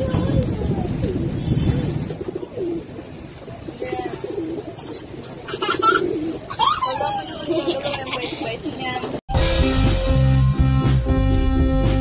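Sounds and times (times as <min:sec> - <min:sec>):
pigeons cooing: 0:00.0 - 0:07.5.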